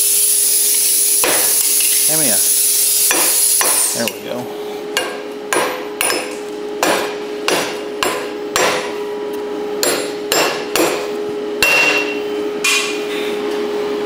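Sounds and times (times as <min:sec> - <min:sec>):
steady hum: 0:00.0 - 0:14.0
steel hammer blows on metal: 0:09.8 - 0:13.0.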